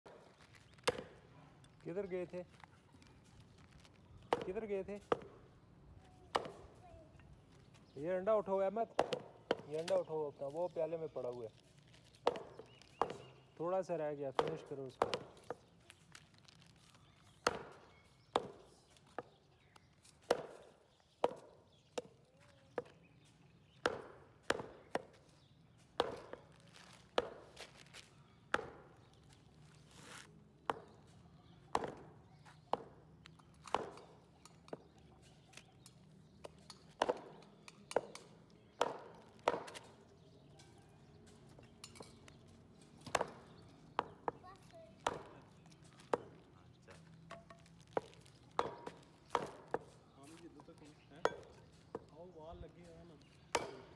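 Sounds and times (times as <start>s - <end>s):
cleaver chopping meat on wood: 8.9s - 10.0s, 12.2s - 13.4s, 14.3s - 15.7s, 17.4s - 19.4s, 20.2s - 22.1s, 23.8s - 25.2s, 26.0s - 26.4s, 28.5s - 28.9s, 31.8s - 34.2s, 36.4s - 40.0s, 43.0s - 44.4s, 45.0s - 46.4s, 47.9s - 50.0s, 53.4s - 53.9s.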